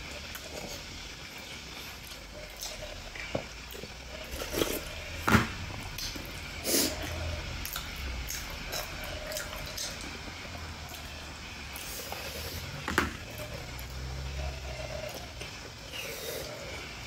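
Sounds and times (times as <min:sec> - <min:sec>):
slurping sauce: 0:04.3 - 0:05.0, 0:06.0 - 0:10.0.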